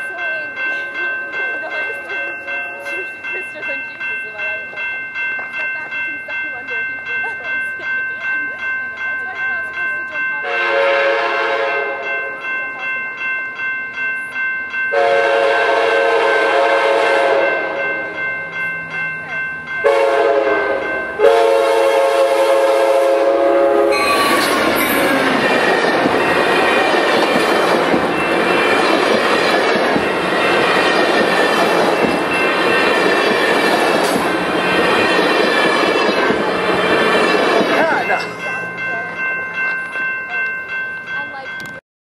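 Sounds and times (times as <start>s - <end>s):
crossing warning bells dinging: 0.0s - 41.8s
train horn: 10.4s - 12.2s, 14.9s - 17.9s, 19.8s - 25.5s
train roaring past: 14.7s - 41.7s.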